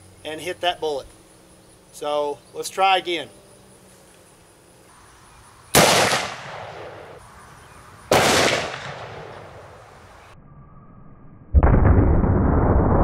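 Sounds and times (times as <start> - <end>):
revolver gunshots: 5.7 - 7.2, 8.1 - 9.8.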